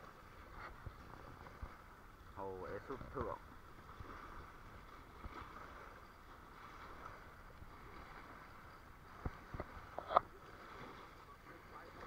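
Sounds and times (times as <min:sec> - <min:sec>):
small waves lapping on stone: 0:00.0 - 0:12.0
wind: 0:00.0 - 0:12.0.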